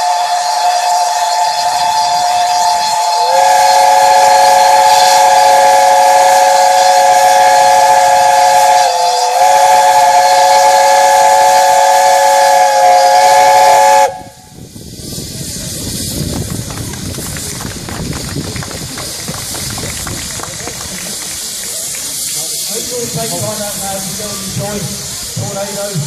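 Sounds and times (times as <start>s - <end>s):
steam whistles blowing in a chord: 0.0s - 15.4s.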